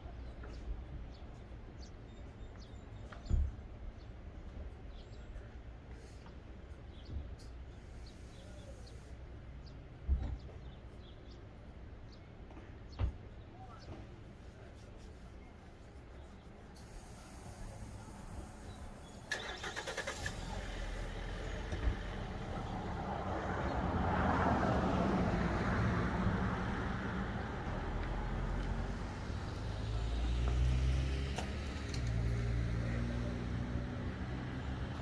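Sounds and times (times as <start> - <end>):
passing vehicle tyre noise: 16.8 - 35.0
car engine moving off: 17.5 - 23.1.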